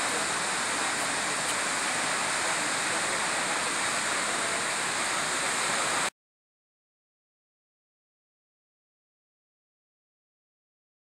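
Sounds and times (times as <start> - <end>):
waterfall rushing: 0.0 - 6.1.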